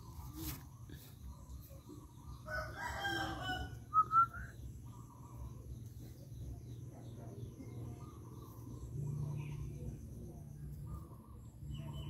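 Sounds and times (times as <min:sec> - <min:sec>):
rooster crowing: 0:02.5 - 0:04.0.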